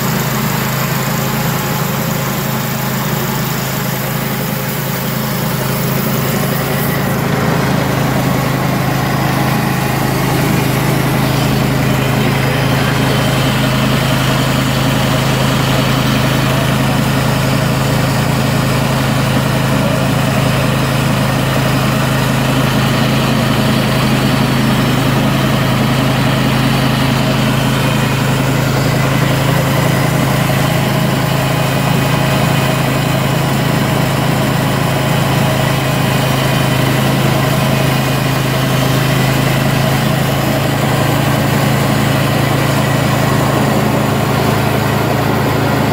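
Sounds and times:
band blade sawing log: 0.0 - 17.6
gasoline engine running: 0.0 - 45.9.

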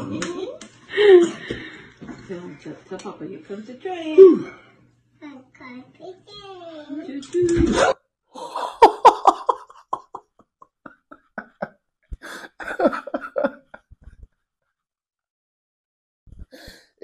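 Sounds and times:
man laughing: 8.4 - 14.0.

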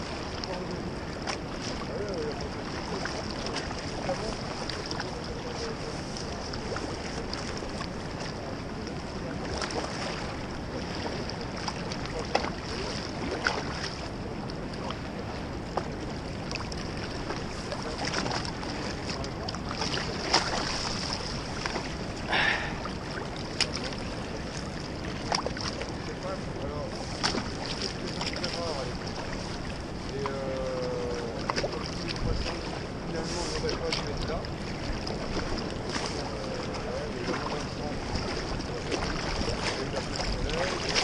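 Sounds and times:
fast river rushing: 0.0 - 41.0
wind on microphone: 0.0 - 41.0
brief splash: 27.0 - 29.2.

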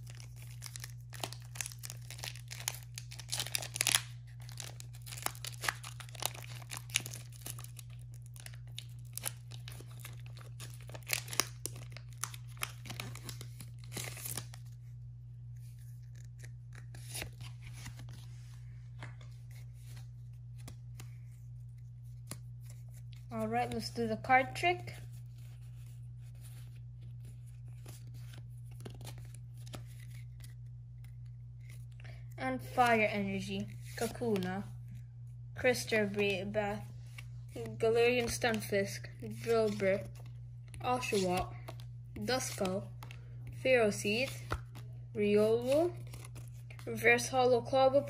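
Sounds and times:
foil wrapper tearing and crinkling: 0.0 - 14.6
steady low hum: 0.0 - 48.0.

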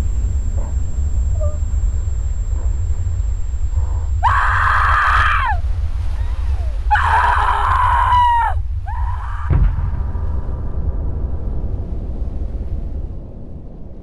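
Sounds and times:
low rumble: 0.0 - 14.0
woman screaming: 4.2 - 5.6, 6.6 - 9.5
sudden low thump: 9.4 - 14.0.

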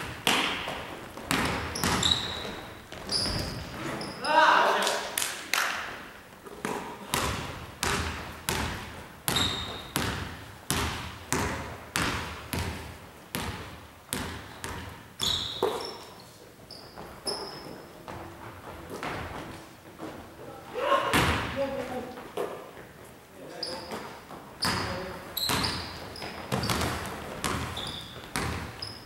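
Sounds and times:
basketball bouncing on hardwood floor: 0.0 - 3.6, 6.6 - 15.9, 24.6 - 28.9
sneaker squeaks: 0.3 - 4.7, 9.3 - 10.1, 14.6 - 18.2, 23.5 - 29.0.

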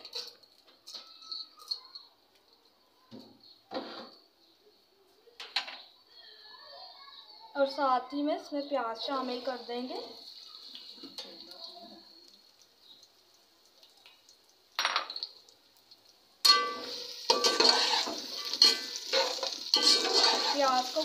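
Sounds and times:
onions sizzling in oil: 8.2 - 21.0
spoon scraping metal pot: 16.5 - 20.9.

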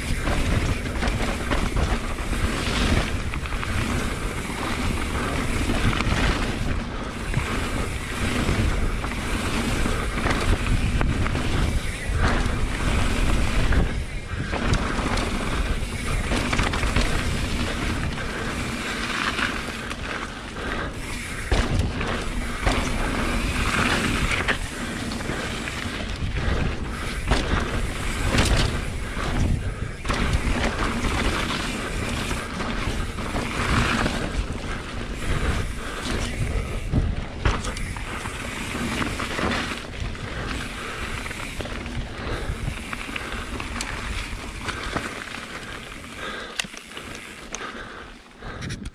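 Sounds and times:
wind rushing on microphone: 0.0 - 18.8, 21.0 - 44.7
bike clattering over rocks: 0.0 - 47.7
bike tyres rumbling: 0.0 - 48.9.

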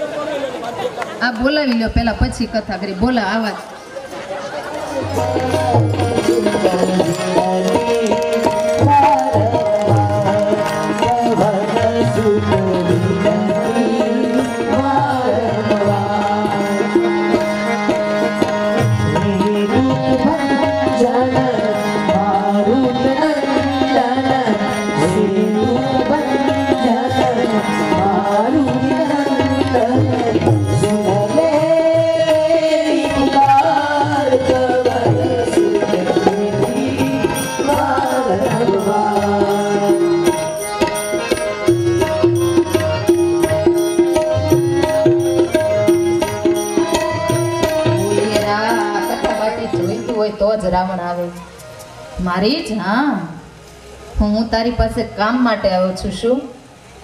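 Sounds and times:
harmonium melody: 0.0 - 55.6
tabla drumming: 1.2 - 3.8, 4.4 - 53.0
electronic keyboard melody: 4.7 - 52.2.

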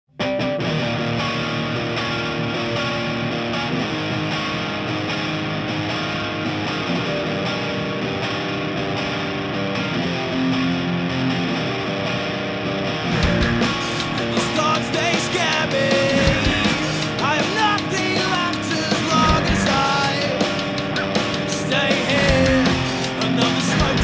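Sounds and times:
distorted electric guitar chords: 0.1 - 24.0
drums and band: 13.0 - 24.0.

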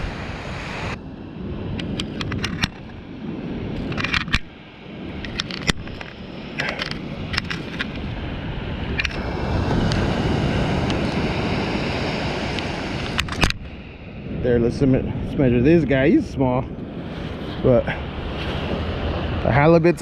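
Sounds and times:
surf: 0.0 - 20.0
wind: 0.0 - 20.0.

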